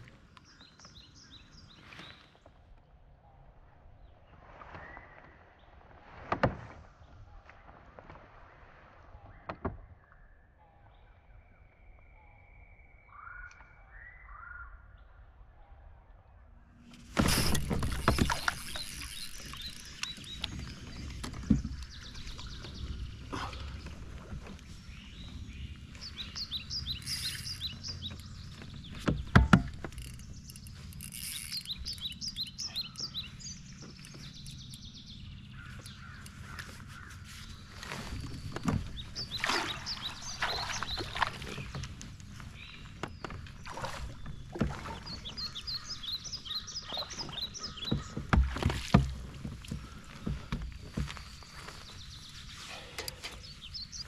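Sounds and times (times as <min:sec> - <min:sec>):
songbird chirping: 0:00.0 - 0:05.2, 0:09.2 - 0:54.0
birds calling: 0:17.0 - 0:54.0
sharp knocks: 0:29.0 - 0:29.9.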